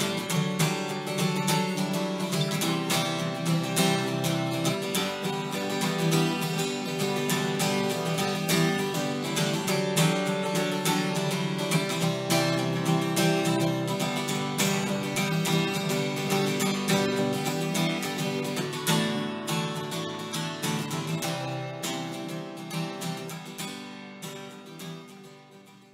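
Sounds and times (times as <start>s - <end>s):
strummed acoustic guitar: 0.0s - 25.9s.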